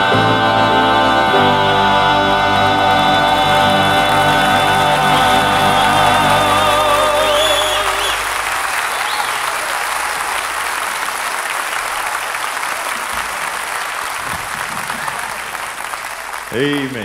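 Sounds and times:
vocal group holding chord: 0:00.0 - 0:08.8
audience applauding: 0:01.7 - 0:17.0.

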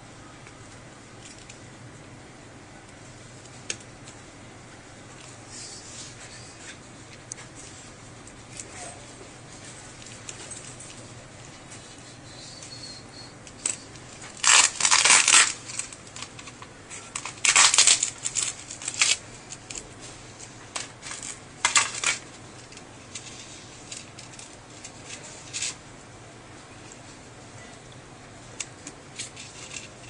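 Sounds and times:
crinkling and clattering of handled parts: 0:01.2 - 0:01.6, 0:09.6 - 0:11.2, 0:13.4 - 0:25.8, 0:28.5 - 0:30.0.

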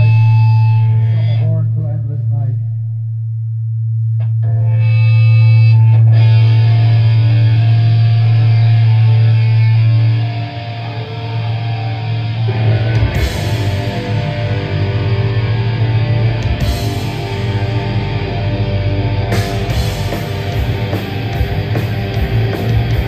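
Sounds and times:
sustained guitar notes: 0:00.0 - 0:23.0
heavy metal band playing live: 0:04.8 - 0:23.0
drums and cymbals: 0:13.0 - 0:15.0, 0:16.3 - 0:18.1, 0:19.3 - 0:23.0.

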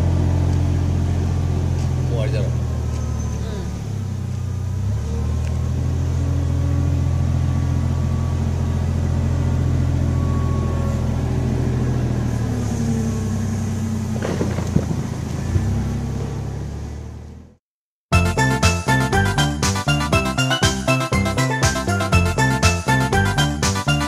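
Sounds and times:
front loader engine running: 0:00.0 - 0:17.6
sharp knocks: 0:14.2 - 0:15.2.

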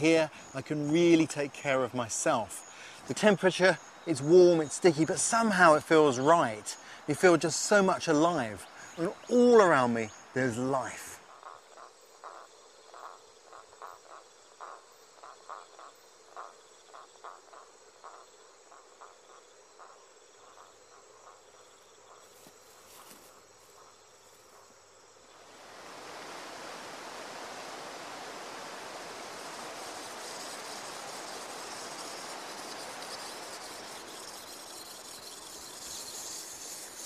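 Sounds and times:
chirping insect pulse: 0:00.0 - 0:37.0
loud insect buzz: 0:11.4 - 0:37.0
faint high whine: 0:25.3 - 0:37.0.

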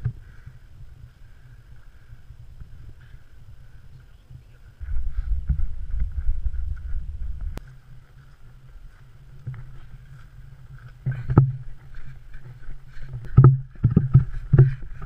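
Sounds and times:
wind on microphone: 0:00.0 - 0:15.0
dull thumps: 0:11.0 - 0:15.0.

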